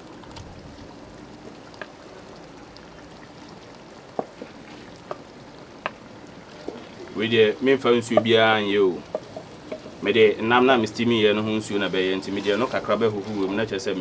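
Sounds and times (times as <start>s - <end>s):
stew bubbling: 0.0s - 14.0s.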